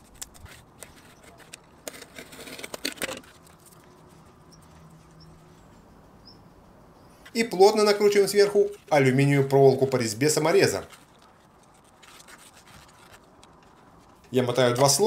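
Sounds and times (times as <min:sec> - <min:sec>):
tape scratching: 0:00.0 - 0:05.6, 0:07.3 - 0:15.0.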